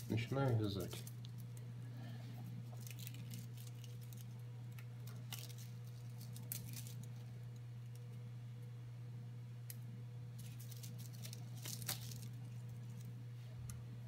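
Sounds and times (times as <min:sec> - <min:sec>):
plastic crinkling and clicking: 0:00.0 - 0:01.7, 0:02.7 - 0:08.1, 0:10.4 - 0:13.1
steady low hum: 0:00.0 - 0:14.0.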